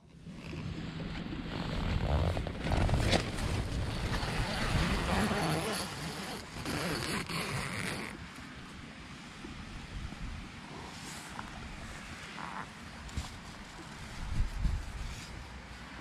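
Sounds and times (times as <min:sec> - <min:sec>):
tent zipper unzipping: 0:00.3 - 0:08.3, 0:12.1 - 0:14.2.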